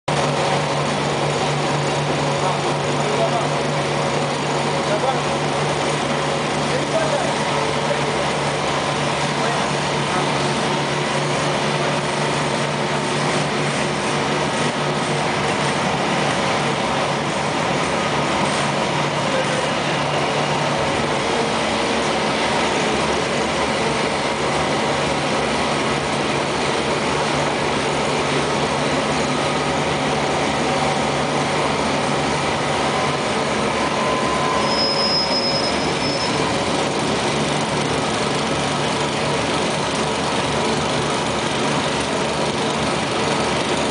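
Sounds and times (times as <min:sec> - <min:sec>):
lathe mechanical whir: 0:00.1 - 0:43.9
brief high squeal: 0:33.8 - 0:36.5.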